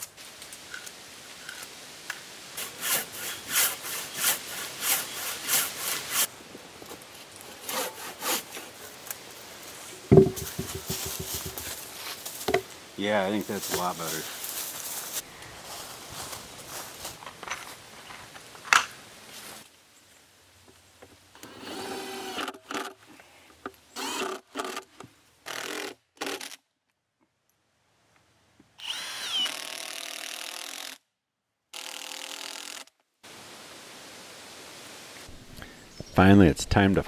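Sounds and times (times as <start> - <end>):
sharp knock: 10.1 - 11.6
cordless drill driving screws: 21.4 - 22.9, 24.0 - 24.9, 25.5 - 26.6, 28.8 - 31.0, 31.8 - 32.9.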